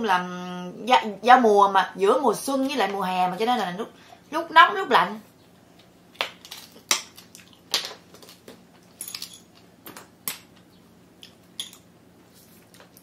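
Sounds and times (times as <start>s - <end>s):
person chewing: 6.2s - 8.6s.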